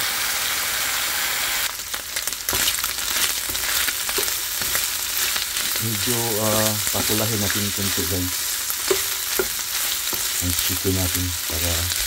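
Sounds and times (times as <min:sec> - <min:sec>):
chicken sizzling in a pan: 0:00.0 - 0:12.0
stirring scrapes and clicks: 0:08.8 - 0:10.8.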